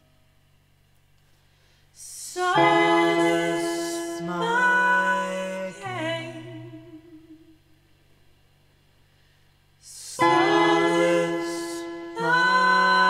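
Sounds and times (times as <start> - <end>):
voices singing slow harmony: 2.0 - 7.8, 9.8 - 13.0.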